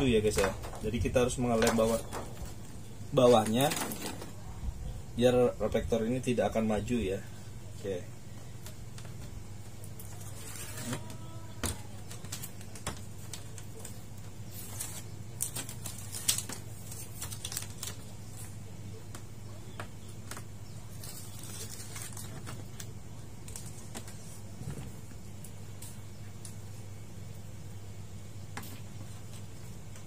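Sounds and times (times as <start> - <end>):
steady low hum: 0.0 - 30.0
rubbing on plastic: 8.6 - 18.6.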